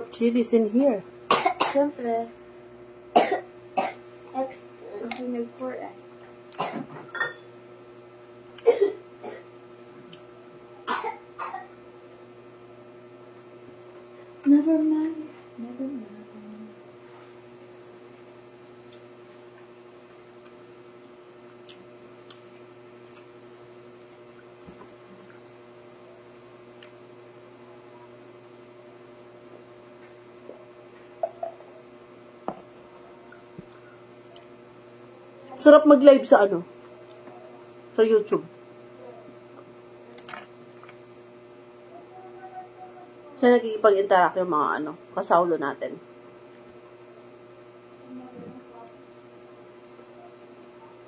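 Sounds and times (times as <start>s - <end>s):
electrical hum: 0.0s - 51.0s
person chewing: 18.8s - 23.5s.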